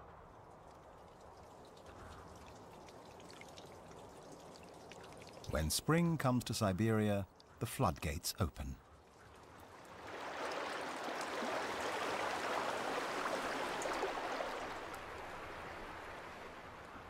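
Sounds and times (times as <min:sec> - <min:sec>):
water churning over rocks: 0:09.9 - 0:15.6.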